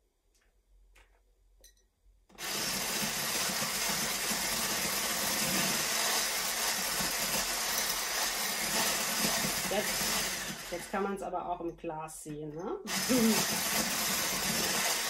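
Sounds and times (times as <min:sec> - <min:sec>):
electric hand blender whisking: 0:02.3 - 0:11.2, 0:12.9 - 0:15.0.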